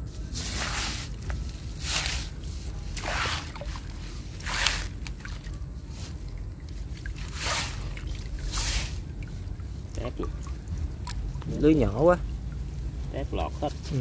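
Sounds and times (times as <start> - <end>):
low steady rumble: 0.0 - 14.0
water splashing and sloshing: 0.1 - 14.0.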